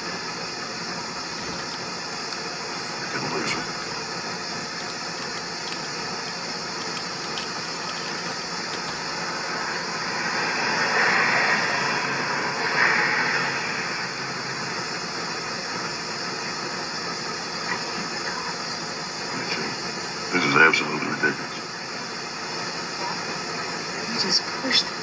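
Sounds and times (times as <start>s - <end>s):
roadside traffic noise: 0.0s - 25.0s
vehicle passing by: 10.0s - 14.6s.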